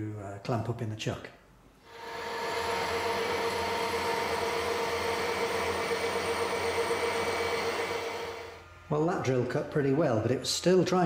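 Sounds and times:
drill cutting metal: 0:01.9 - 0:08.7
lathe whine: 0:01.9 - 0:10.8.

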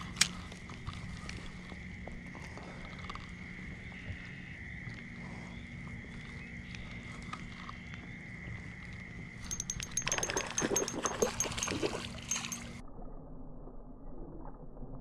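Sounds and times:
fishing reel clicks: 0:09.4 - 0:11.7
high-pitched hum: 0:09.4 - 0:14.0.

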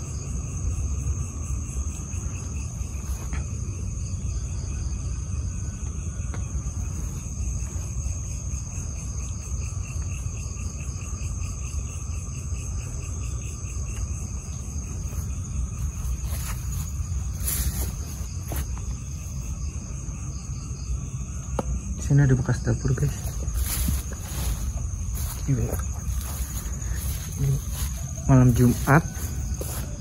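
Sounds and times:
constant low rumble: 0:00.0 - 0:30.0
crickets trilling: 0:00.0 - 0:30.0
pulsing insect chirps: 0:00.0 - 0:30.0.

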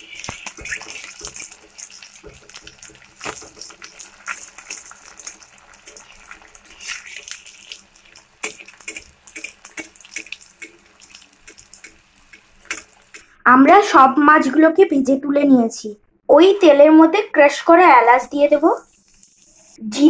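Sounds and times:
metal spatula scraping pan: 0:00.0 - 0:13.3
fish sizzling in hot oil: 0:00.0 - 0:13.4, 0:18.0 - 0:19.8.

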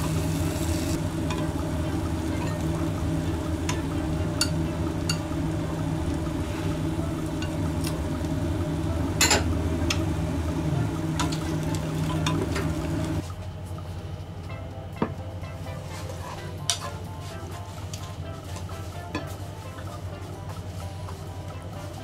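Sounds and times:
food sizzling in a frying pan: 0:00.0 - 0:13.2
steady low hum: 0:00.0 - 0:22.0.

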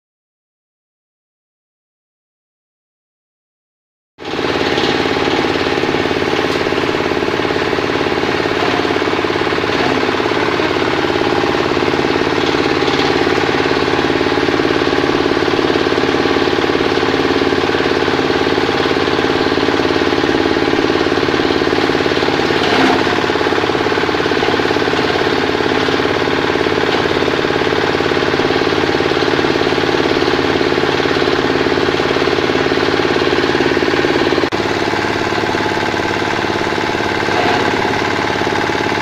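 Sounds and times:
compost shredder engine knocking: 0:04.2 - 0:39.0.

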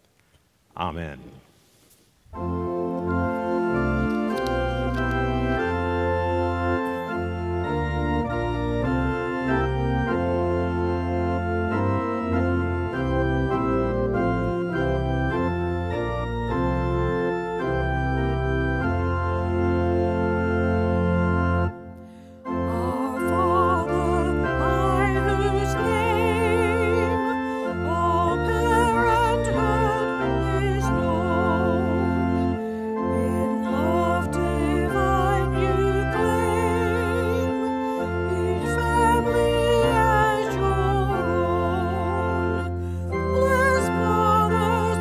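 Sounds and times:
church organ chords: 0:02.3 - 0:45.0
woman singing a hymn: 0:22.5 - 0:45.0.

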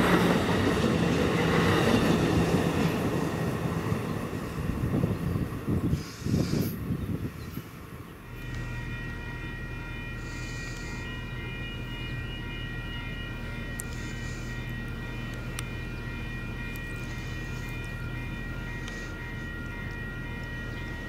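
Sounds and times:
train running with high whine: 0:00.0 - 0:21.0
faint ticks: 0:13.7 - 0:15.7.

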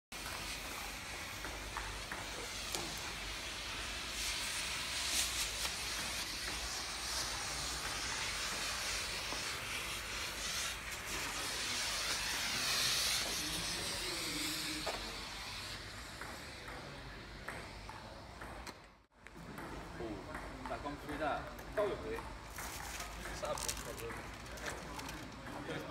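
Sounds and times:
smoke grenade hissing: 0:00.2 - 0:17.8.

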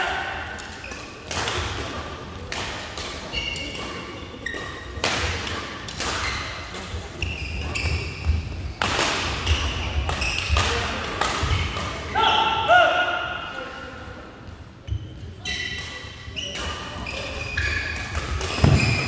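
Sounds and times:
shoes squeaking on court floor: 0:03.2 - 0:05.0, 0:06.2 - 0:08.8, 0:09.4 - 0:10.6, 0:14.8 - 0:19.0.

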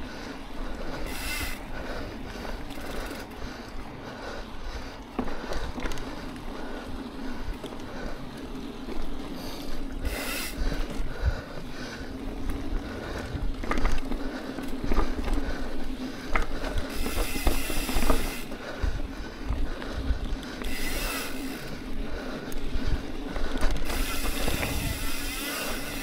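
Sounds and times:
bike rattling over bumps: 0:00.0 - 0:26.0
freewheel ratchet clicking: 0:01.0 - 0:01.6, 0:10.0 - 0:10.9, 0:16.8 - 0:18.5, 0:20.6 - 0:21.7, 0:23.6 - 0:26.0
hiss: 0:10.0 - 0:10.6.

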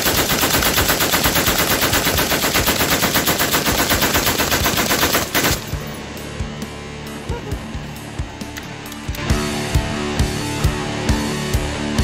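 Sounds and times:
machine gun firing full-auto: 0:00.0 - 0:05.8.

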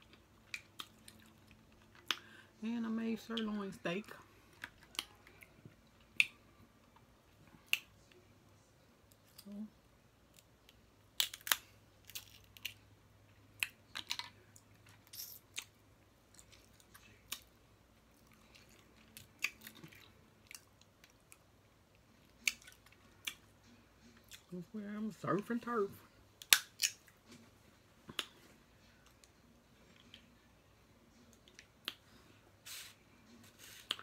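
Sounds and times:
close chewing: 0:00.0 - 0:02.3, 0:18.1 - 0:21.4.

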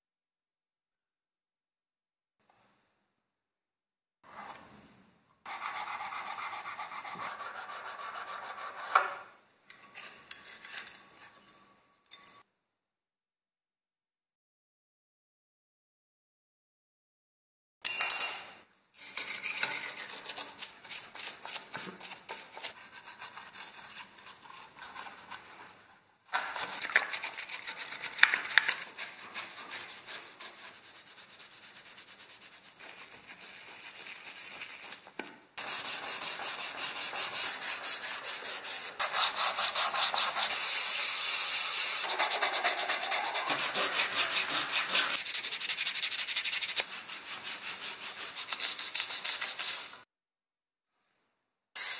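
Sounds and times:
toothbrush scrubbing plastic: 0:19.0 - 0:50.0
metal file rasping on plastic: 0:42.0 - 0:45.6.

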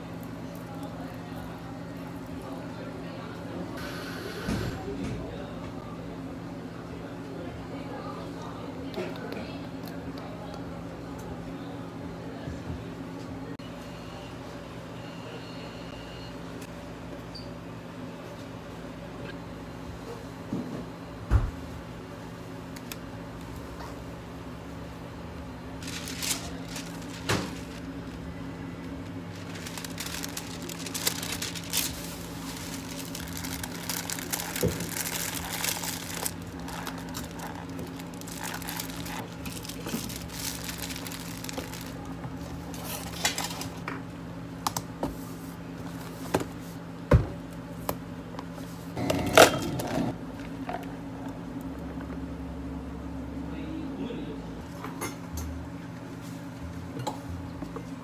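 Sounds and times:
steady low hum: 0:21.5 - 0:58.0
plastic packaging crinkling: 0:25.8 - 0:43.8.

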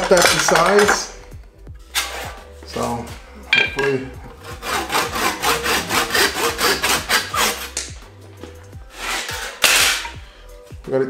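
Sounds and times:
hand saw cutting wood: 0:01.9 - 0:03.0, 0:03.8 - 0:08.0, 0:08.9 - 0:10.2.

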